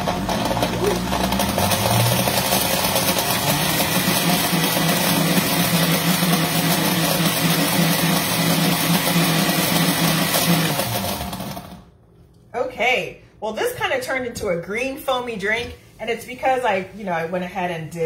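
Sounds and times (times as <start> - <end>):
blender motor running: 0.0 - 11.9.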